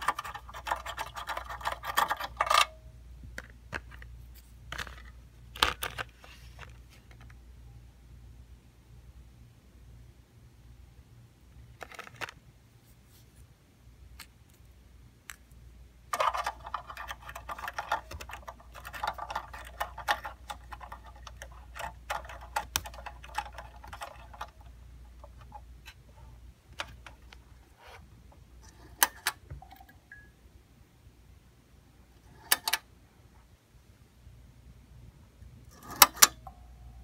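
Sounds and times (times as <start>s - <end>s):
plastic clicking and crinkling: 0.0s - 7.4s, 11.8s - 12.4s, 14.1s - 27.7s.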